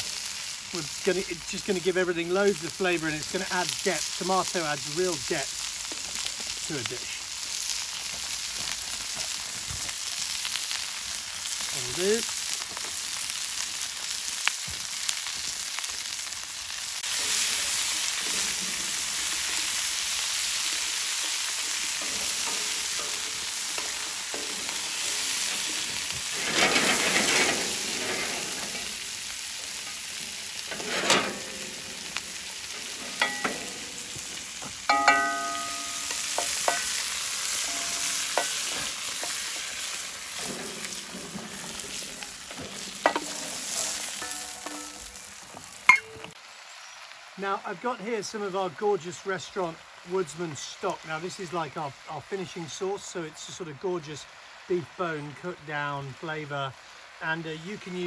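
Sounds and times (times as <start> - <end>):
vegetables and bacon sizzling: 0.0 - 58.0
wooden spoon stirring: 20.7 - 28.6, 32.1 - 45.1
metal pan clanks: 21.9 - 29.0, 30.7 - 32.2, 32.8 - 34.2, 34.9 - 39.5, 42.6 - 45.2.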